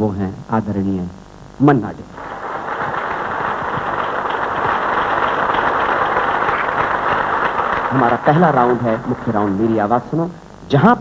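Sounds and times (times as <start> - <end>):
audience applauding: 2.1 - 10.2.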